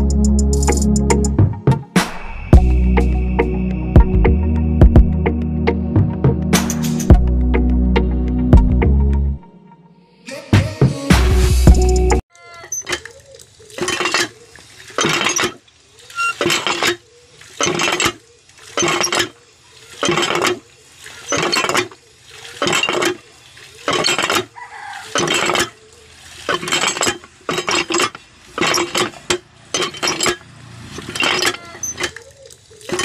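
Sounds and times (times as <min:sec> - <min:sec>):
hand pump clinking and splashing: 0:12.4 - 0:33.0.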